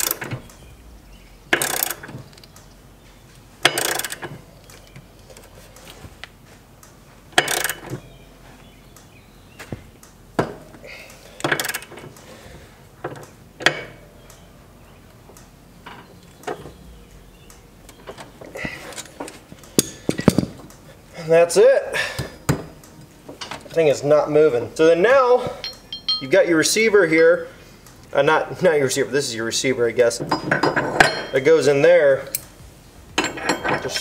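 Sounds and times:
socket ratchet clicking: 1.6 - 2.6, 3.6 - 4.3.

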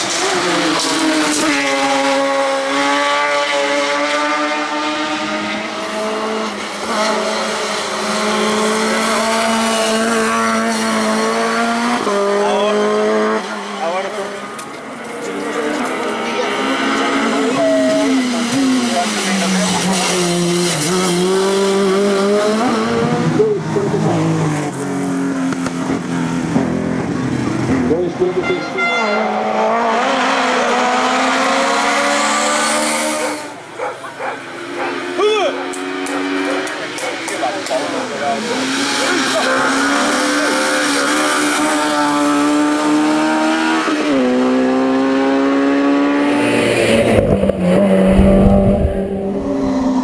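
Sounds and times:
racing car engine at high revs: 0.0 - 28.4, 29.0 - 50.0
race car passing by: 29.1 - 50.0.

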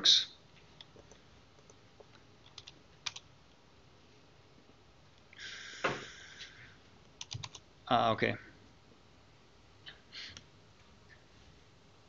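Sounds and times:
brief hiss: 5.4 - 6.6
keyboard key clicks: 7.2 - 7.6.

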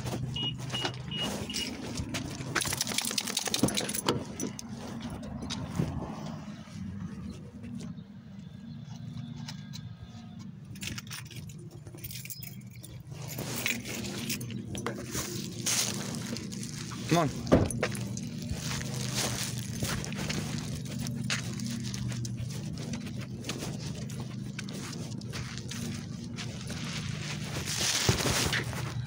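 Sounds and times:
metal jangling and clicks: 1.4 - 5.6, 10.4 - 15.4
car door opening: 17.4 - 18.0.

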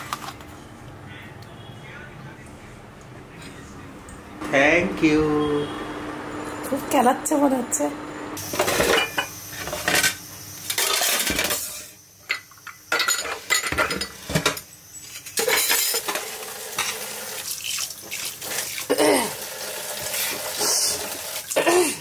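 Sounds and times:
dishes clinking in a sink: 8.6 - 11.6, 12.3 - 17.1
tap water running: 16.0 - 21.7.

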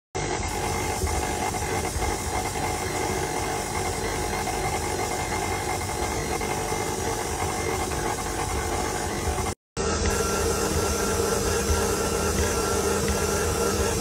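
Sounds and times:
stand mixer motor humming: 0.2 - 14.0.

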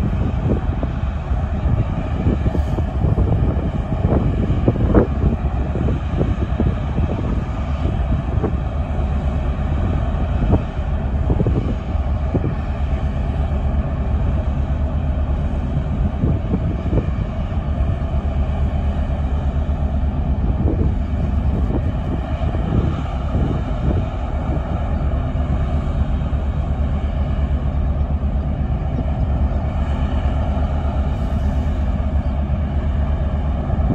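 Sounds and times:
ship engines droning: 0.0 - 33.9.

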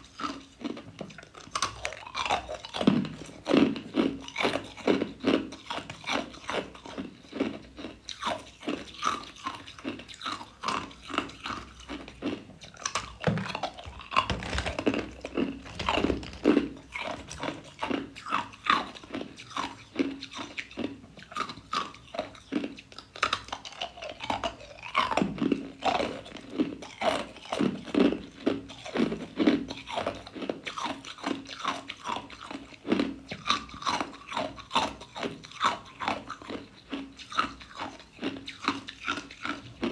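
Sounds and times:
ice cubes crunching: 1.4 - 20.4.

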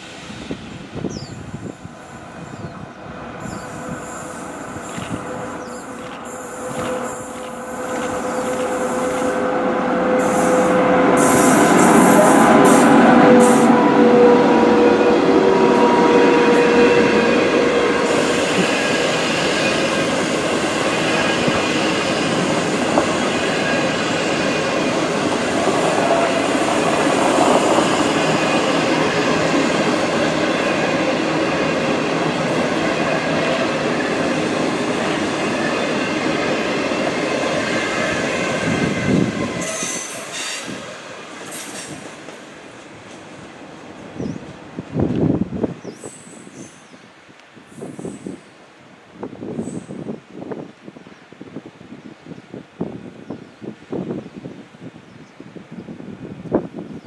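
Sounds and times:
train rumbling on rails: 0.0 - 57.0
locomotive whine: 1.6 - 45.5.

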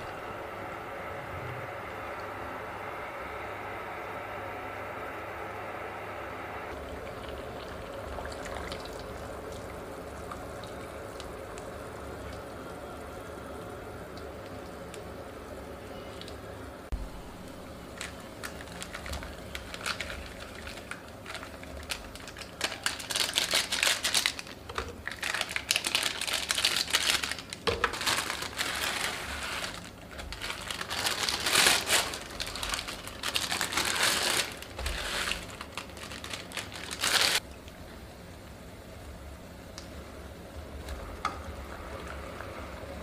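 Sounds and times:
plastic packaging crinkling and tearing: 17.9 - 37.4.

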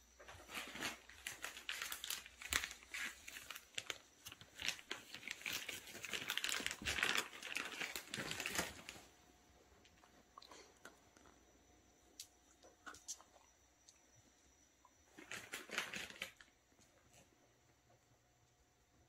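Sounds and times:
plastic bag crinkling: 0.4 - 9.2, 15.1 - 16.6.

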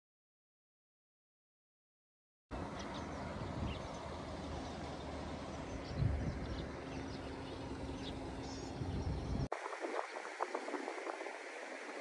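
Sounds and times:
small birds chirping: 2.5 - 11.3
wind buffeting microphone: 2.6 - 12.0
hiss with light crackling: 9.5 - 12.0.

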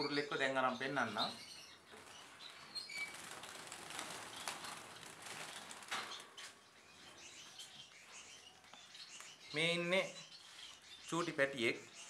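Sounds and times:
birds chirping: 0.0 - 12.0
birds flapping wings in cage: 2.9 - 6.4.

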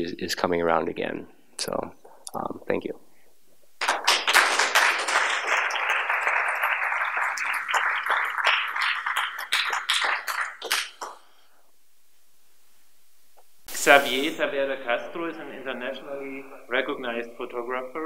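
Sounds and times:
audience applause: 3.8 - 11.2.

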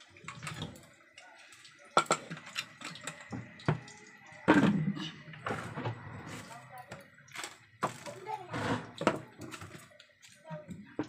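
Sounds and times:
kitchen utensils knocking and clinking: 2.0 - 3.8.

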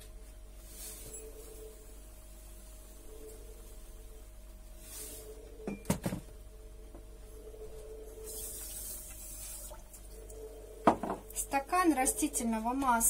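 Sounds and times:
containers knocking on table: 10.8 - 11.2.

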